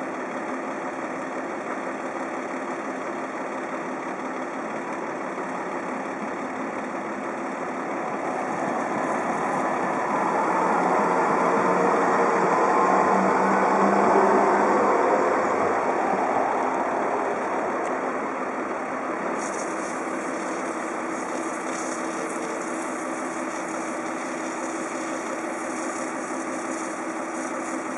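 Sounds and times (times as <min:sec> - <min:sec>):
tram rolling noise: 0:00.0 - 0:27.9
truck engine idling: 0:00.0 - 0:27.9
spray lance hissing: 0:19.3 - 0:27.9.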